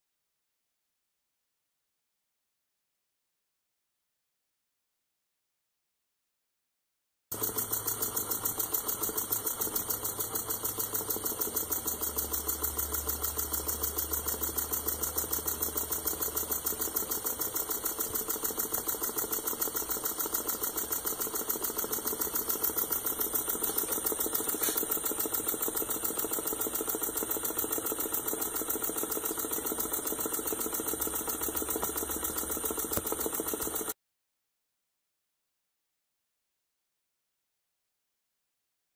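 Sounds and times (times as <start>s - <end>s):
model engine puffing and clicking: 7.3s - 34.0s.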